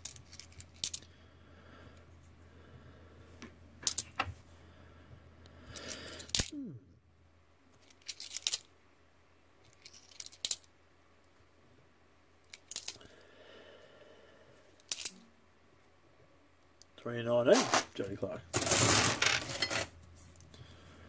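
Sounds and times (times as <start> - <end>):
coins clinking: 17.6 - 18.0, 18.6 - 19.9
coin ringing: 18.6 - 19.9.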